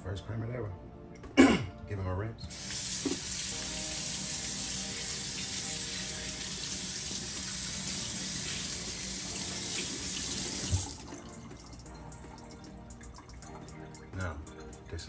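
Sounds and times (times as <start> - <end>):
faucet water running into sink: 2.5 - 15.0.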